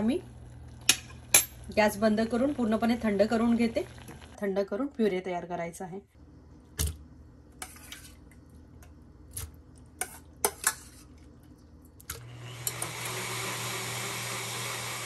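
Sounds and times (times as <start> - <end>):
blender running: 12.1 - 15.0.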